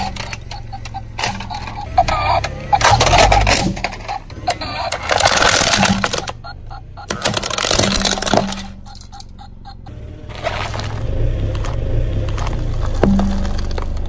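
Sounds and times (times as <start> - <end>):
plastic toy cracking under tyre: 2.8 - 6.4, 7.0 - 9.2, 11.6 - 14.0.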